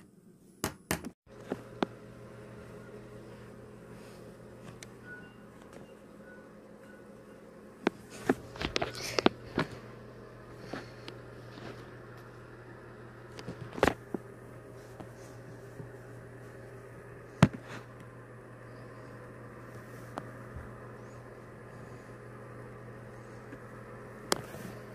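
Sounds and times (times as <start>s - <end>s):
low hum: 1.3s - 24.9s.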